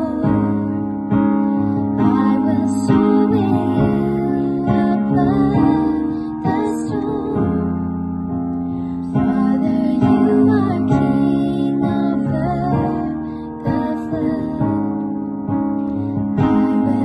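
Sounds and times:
women singing slow song: 0:00.0 - 0:01.0, 0:01.8 - 0:15.3, 0:16.2 - 0:17.0.

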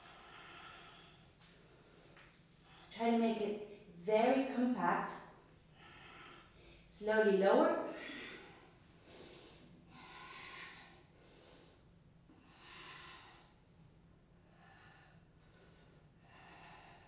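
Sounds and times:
woman breathing effortfully: 0:00.0 - 0:02.9, 0:05.6 - 0:06.9, 0:07.9 - 0:17.0.

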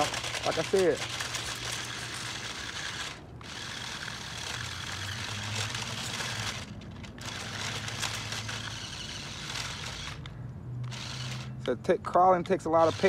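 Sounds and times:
toy truck electric motor humming: 0:00.0 - 0:11.7, 0:12.6 - 0:13.0.

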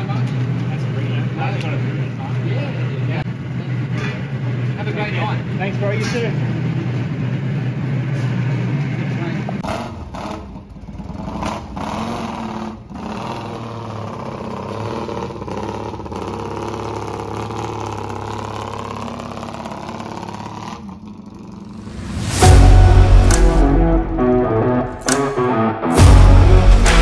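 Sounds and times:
motorcycle engine pulling away: 0:09.6 - 0:22.8
rock music with electric guitar: 0:22.0 - 0:27.0.

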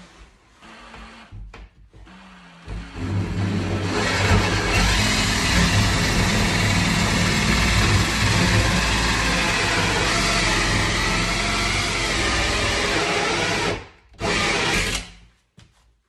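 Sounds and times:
cordless drill boring into wood: 0:02.1 - 0:15.1.

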